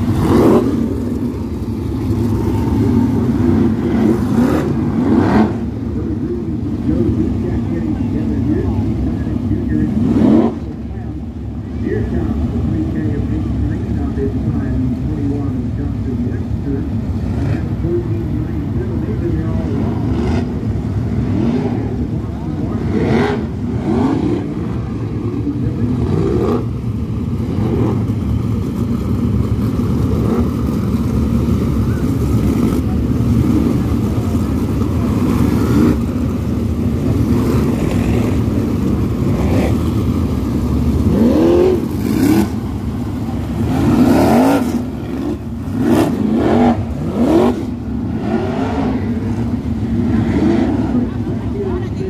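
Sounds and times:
race car engines passing: 0:00.0 - 0:52.0.

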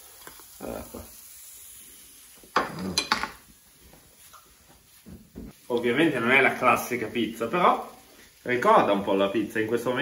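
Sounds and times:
food frying in a pan: 0:00.0 - 0:10.0
utensil clinking on pan and plate: 0:02.5 - 0:03.4.

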